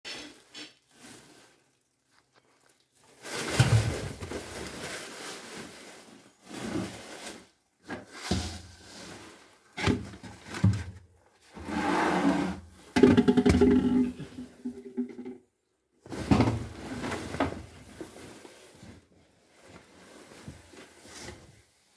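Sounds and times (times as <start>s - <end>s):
plastic containers scraping on floor: 3.1s - 15.5s, 16.1s - 19.1s.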